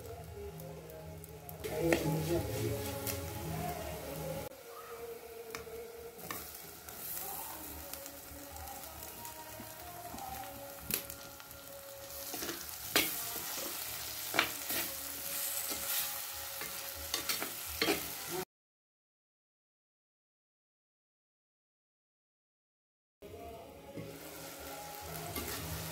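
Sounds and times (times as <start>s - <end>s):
vegetables sizzling in oil: 0.0s - 18.5s, 23.9s - 25.9s
steel spoon stirring: 12.0s - 18.2s.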